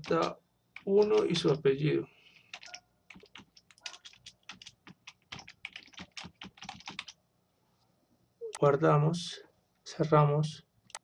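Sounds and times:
computer keyboard typing: 0:00.0 - 0:01.7, 0:02.4 - 0:07.2.

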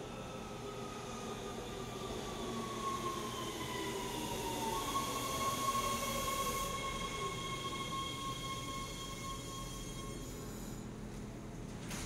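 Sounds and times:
train high whine: 0:00.0 - 0:11.2
subway train rumble: 0:00.0 - 0:11.9.

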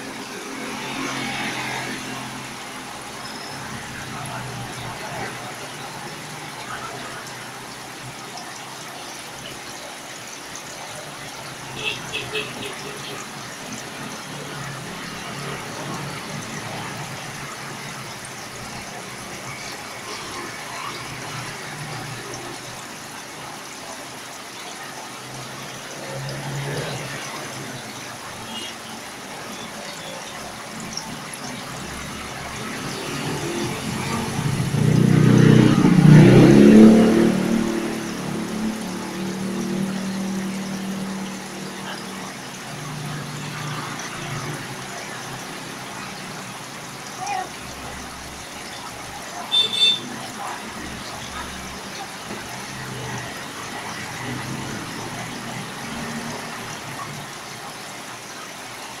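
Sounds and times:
aquarium water bubbling: 0:00.0 - 0:59.0
vehicle engine passing: 0:00.5 - 0:05.8, 0:31.7 - 0:46.2.

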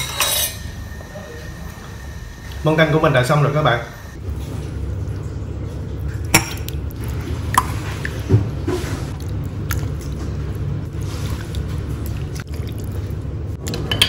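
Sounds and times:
metal ladle clinking: 0:00.0 - 0:00.6
steady low hum: 0:00.0 - 0:14.0
broth splashing: 0:06.2 - 0:13.5.

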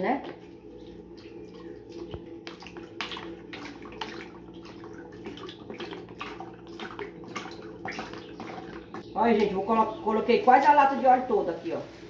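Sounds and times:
oil glugging from plastic bottle: 0:00.8 - 0:09.6.

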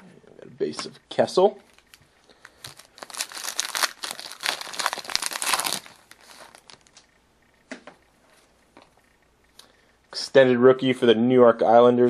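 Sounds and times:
plastic rustling: 0:01.6 - 0:07.0
plastic wrapper tearing and crinkling: 0:01.7 - 0:07.0.

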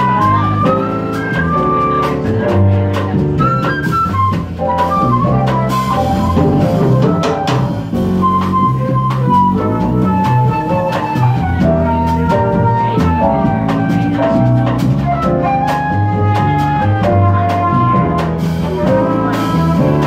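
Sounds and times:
double bass: 0:00.0 - 0:20.0
drum kit with cymbals: 0:00.0 - 0:20.0
flute melody: 0:00.0 - 0:20.0.

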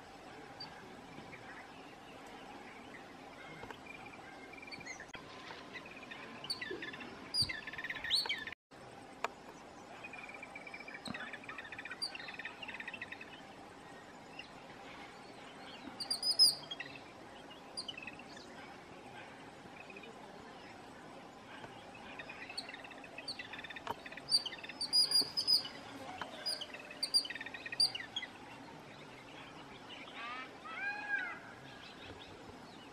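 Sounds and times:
birds chattering calls: 0:09.5 - 0:32.9
sharp high bird calls: 0:22.5 - 0:28.2.

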